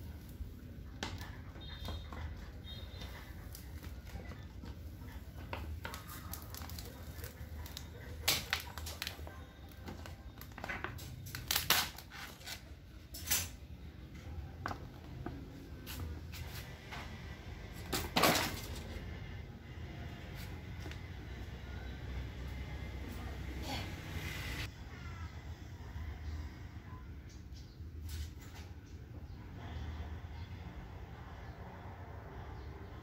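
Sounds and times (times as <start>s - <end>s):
plastic film crinkling: 4.9s - 12.7s
plastic film rustling: 4.9s - 12.8s.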